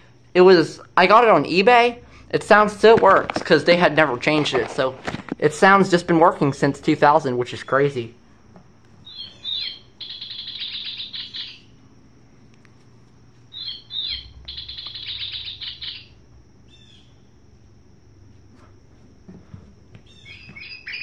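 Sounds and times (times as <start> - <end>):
recorded bird call from toy: 9.0 - 11.7, 13.5 - 17.0, 20.2 - 21.0.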